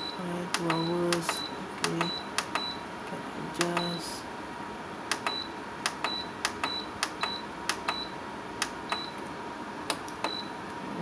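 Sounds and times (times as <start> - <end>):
button clicks: 0.6 - 2.7, 5.1 - 9.2.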